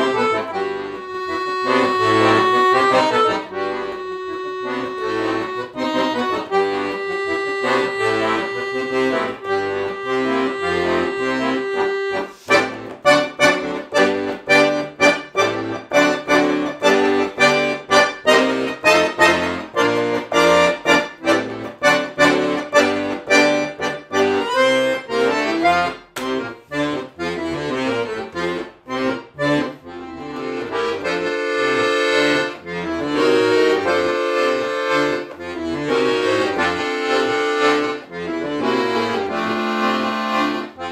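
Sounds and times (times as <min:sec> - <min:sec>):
piano accordion playing: 0:00.0 - 0:40.9.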